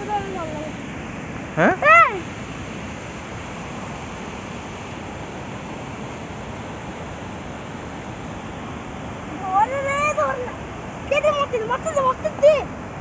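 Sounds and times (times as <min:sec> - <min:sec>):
river rushing over rocks: 0:00.0 - 0:13.0.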